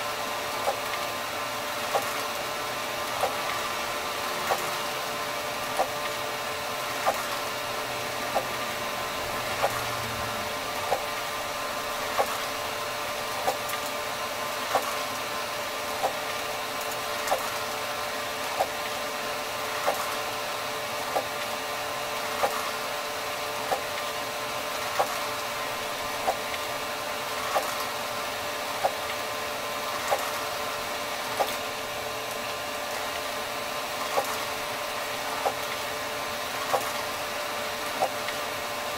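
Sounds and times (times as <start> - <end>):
printer mechanical whine: 0.0 - 38.9
sharp printer clicks: 0.6 - 1.0, 1.9 - 2.3, 3.2 - 3.7, 4.4 - 4.8, 5.7 - 6.2, 7.0 - 7.5, 8.3 - 8.7, 9.5 - 10.2, 10.8 - 11.2, 12.1 - 12.6, 13.3 - 14.0, 14.7 - 15.1, 16.0 - 17.7, 19.7 - 20.2, 22.4 - 22.8, 24.9 - 25.3, 26.2 - 26.7, 27.4 - 28.0, 30.0 - 30.5, 31.2 - 31.7, 34.0 - 34.5, 35.3 - 35.8, 36.6 - 37.1, 37.9 - 38.4.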